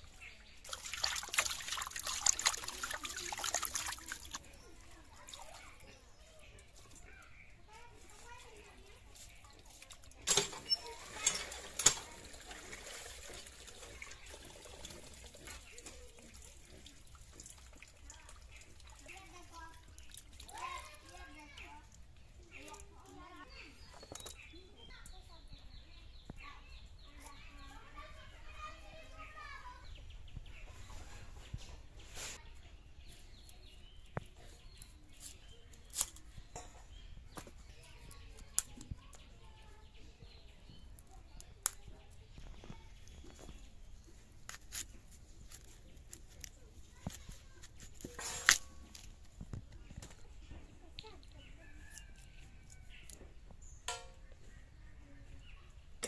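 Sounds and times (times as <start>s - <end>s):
water sloshing and splashing: 0.0s - 5.8s, 9.2s - 22.1s
small birds calling: 0.0s - 12.4s, 14.0s - 56.0s
cauliflower snapping: 34.8s - 36.3s, 41.0s - 41.9s, 44.4s - 49.1s
faint chickens: 49.7s - 53.5s.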